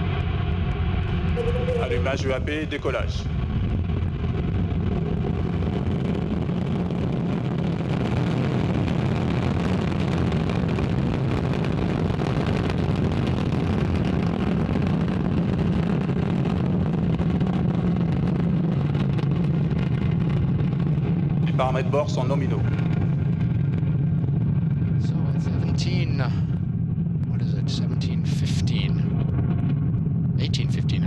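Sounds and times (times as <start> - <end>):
rocket engine rumble: 0.0 - 31.0.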